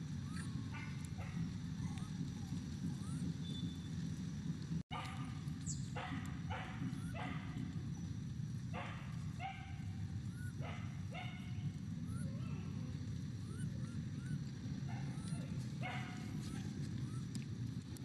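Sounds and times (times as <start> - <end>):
faint rising chirps: 13.4 - 15.5
short animal calls: 13.4 - 17.3.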